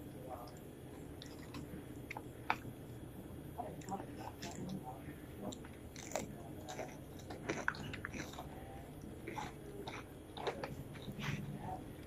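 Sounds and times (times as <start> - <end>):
person chewing with crunches: 0.4 - 3.0, 5.4 - 11.6.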